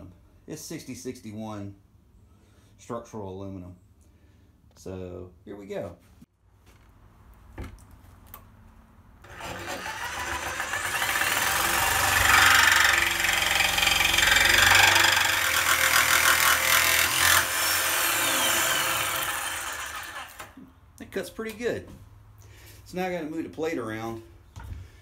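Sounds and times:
jigsaw cutting metal: 0:09.2 - 0:20.6.

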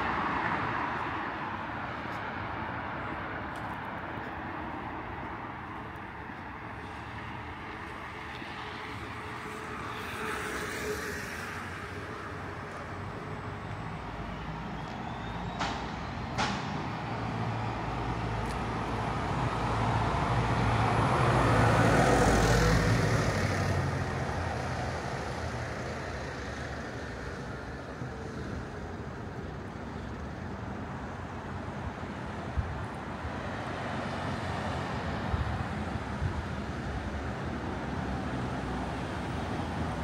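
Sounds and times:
city street traffic hum: 0:00.0 - 0:40.0.

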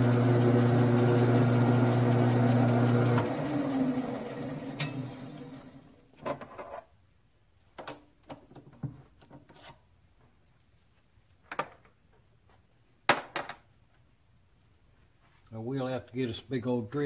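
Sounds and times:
lathe motor hum: 0:00.0 - 0:05.9.

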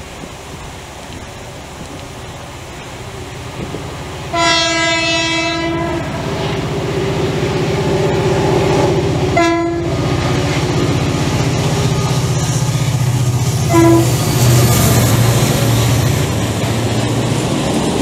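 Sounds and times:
locomotive engine and wheels rumbling: 0:00.0 - 0:18.0
locomotive horn blasts: 0:04.3 - 0:06.7, 0:07.8 - 0:10.6, 0:11.7 - 0:14.6.

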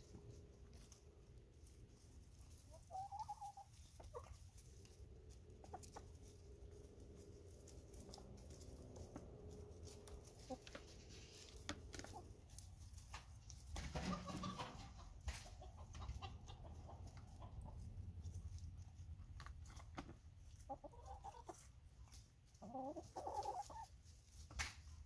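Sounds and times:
hens clucking: 0:00.0 - 0:25.0.

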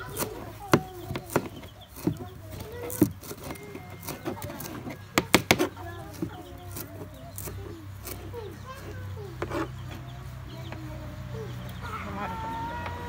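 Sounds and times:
hens clucking: 0:00.0 - 0:13.0.

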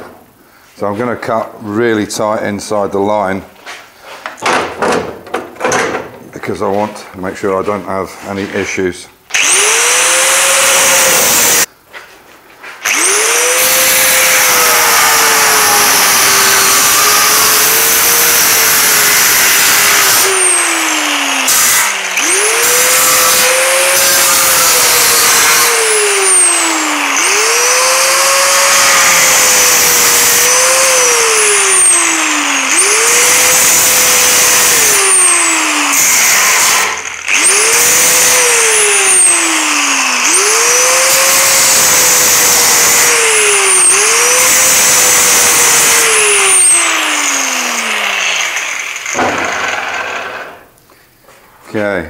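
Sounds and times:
angle grinder cutting sheet steel: 0:09.3 - 0:11.7, 0:12.8 - 0:50.7.

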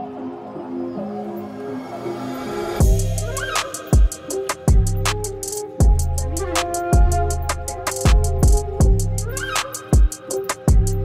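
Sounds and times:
bass drum thumps: 0:02.8 - 0:03.4, 0:04.7 - 0:09.4, 0:10.7 - 0:11.0
hi-hat ticks: 0:02.8 - 0:11.0.

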